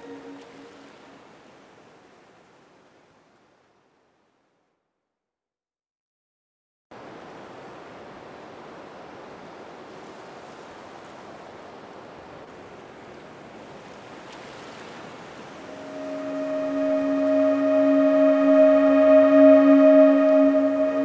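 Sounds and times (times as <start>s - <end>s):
sustained pitched tone: 0.0s - 1.0s, 15.7s - 21.0s.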